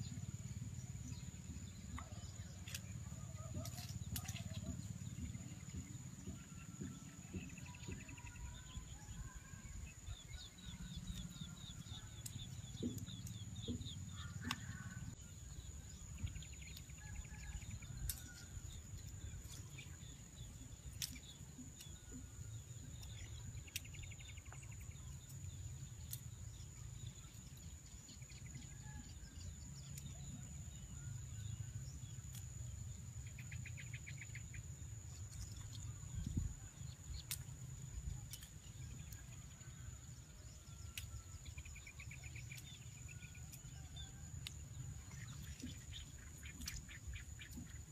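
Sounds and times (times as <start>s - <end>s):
low steady rumble: 0.0s - 47.9s.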